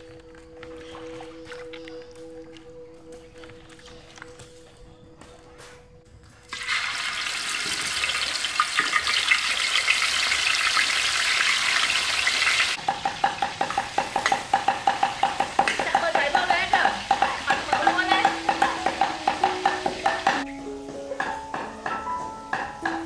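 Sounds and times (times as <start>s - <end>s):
fish sizzling in hot oil: 6.5s - 20.8s.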